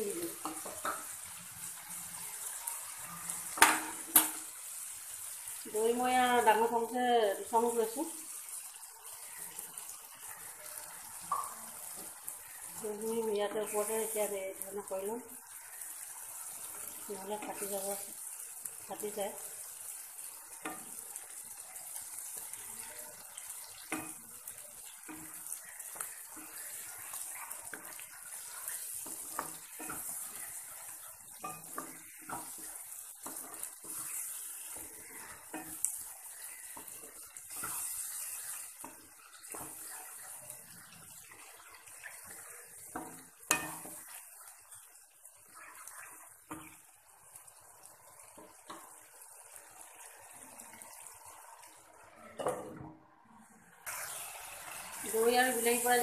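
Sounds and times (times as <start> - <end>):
frying hiss: 0.0 - 56.0
spatula scraping pan: 23.7 - 44.5.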